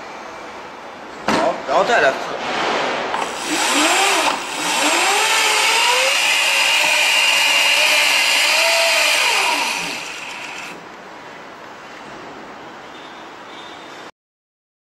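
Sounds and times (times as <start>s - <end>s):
electric scooter motor whirring: 3.2s - 10.8s.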